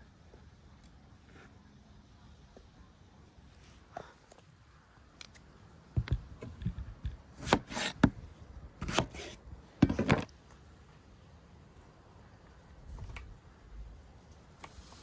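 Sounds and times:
cleaver cutting on wooden board: 7.4 - 8.2, 8.8 - 9.4.

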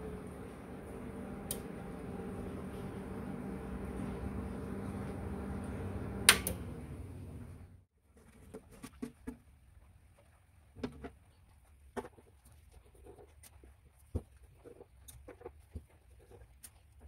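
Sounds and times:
amplifier hum and fan noise: 0.0 - 7.8
amplifier switch click: 1.4 - 1.7, 6.2 - 6.7.

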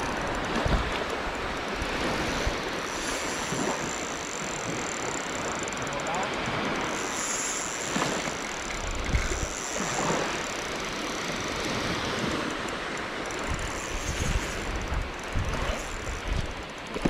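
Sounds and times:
wind buffeting microphone: 0.0 - 2.8, 8.7 - 9.6, 13.3 - 16.7
waves washing onto beach: 0.0 - 17.0.

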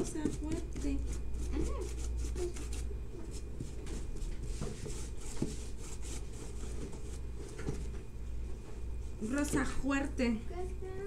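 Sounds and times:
paintbrush scratching on cardboard: 0.0 - 7.2
steady low hum: 0.0 - 11.0.

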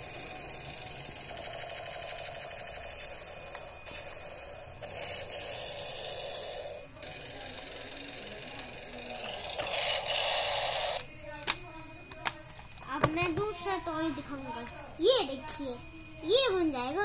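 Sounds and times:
toy motor whirring: 0.0 - 11.1.

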